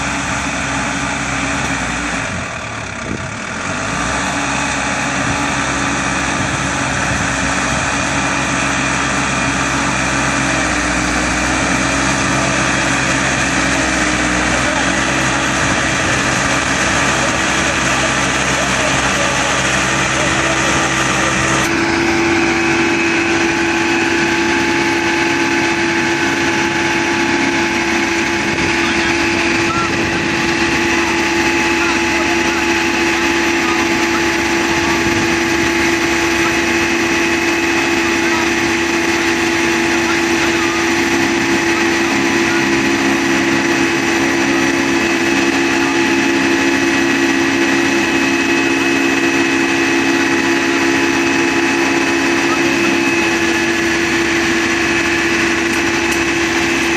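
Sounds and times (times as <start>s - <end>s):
constant whine: 0.0s - 56.9s
tractor engine running: 0.0s - 56.9s.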